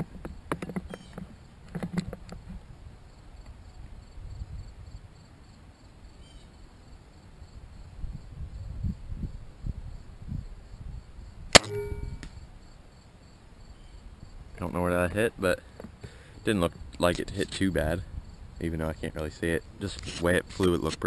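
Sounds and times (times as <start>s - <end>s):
crossbow string snap: 11.6s - 12.4s.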